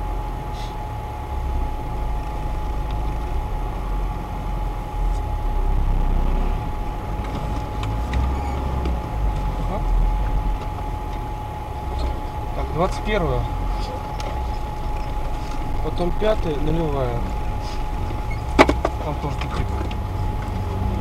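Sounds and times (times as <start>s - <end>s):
engine low rumble: 0.0s - 21.0s
high whining tone: 0.0s - 21.0s.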